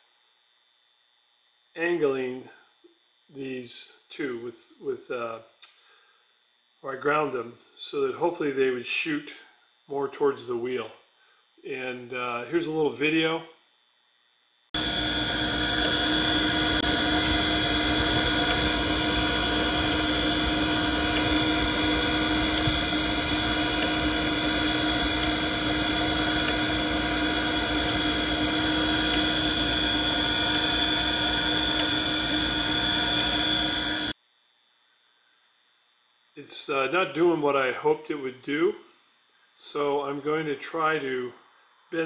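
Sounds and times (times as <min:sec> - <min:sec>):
grinder machine hum: 0:14.8 - 0:34.1.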